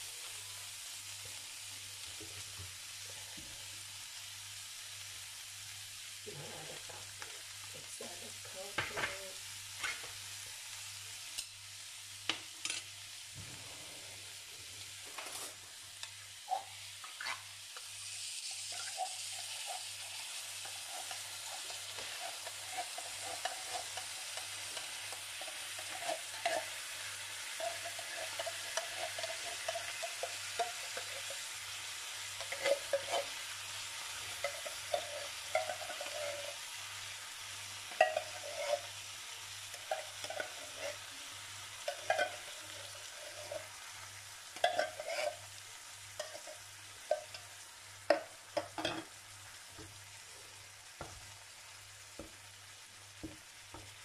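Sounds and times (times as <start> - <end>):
chicken sizzling in a frying pan: 0.0 - 54.0
spatula scraping and knocking on pan: 18.9 - 31.5, 32.3 - 33.4, 34.2 - 36.6, 37.9 - 38.9, 39.8 - 41.0, 41.9 - 43.7, 44.6 - 45.5, 46.2 - 47.4.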